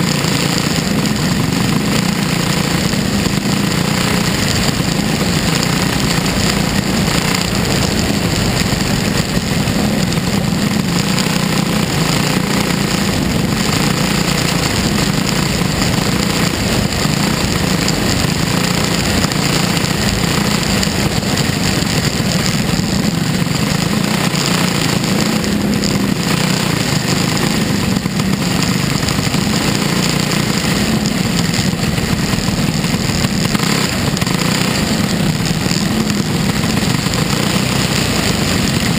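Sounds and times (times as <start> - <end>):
race car engine running hard: 0.0 - 38.9
track noise: 0.0 - 38.9
wind: 0.0 - 38.9.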